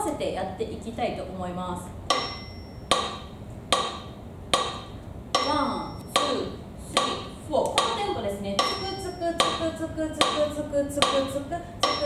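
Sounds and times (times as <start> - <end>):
sharp ringing percussive hits: 2.1 - 6.4, 7.0 - 12.0.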